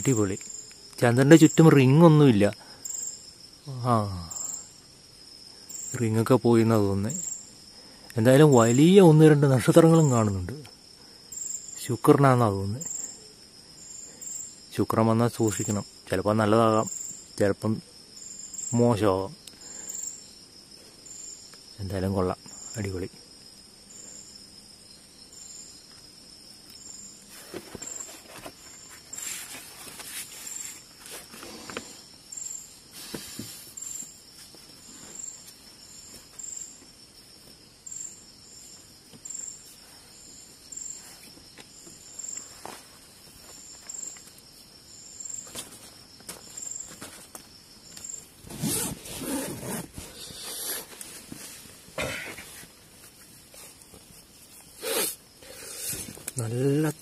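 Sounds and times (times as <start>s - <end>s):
crickets chirping: 0.0s - 57.0s
insect trill: 0.0s - 57.0s
rustling inside a tent: 26.1s - 57.0s.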